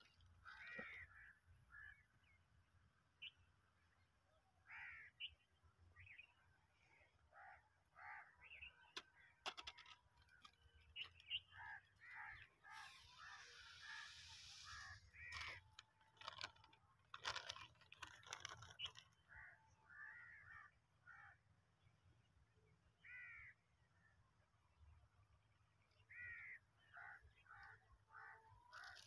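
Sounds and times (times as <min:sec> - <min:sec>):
crow cawing: 0:04.7 - 0:05.2, 0:19.9 - 0:21.4, 0:23.1 - 0:23.6.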